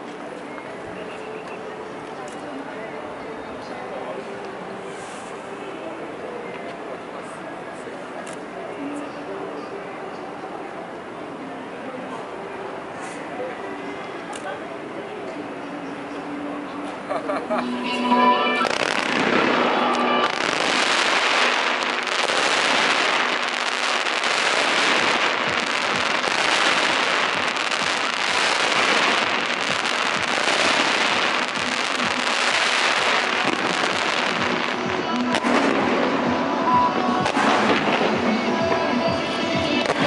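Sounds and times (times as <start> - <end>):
music playing: 16.1 - 40.0
fireworks hissing crackle: 18.6 - 40.0.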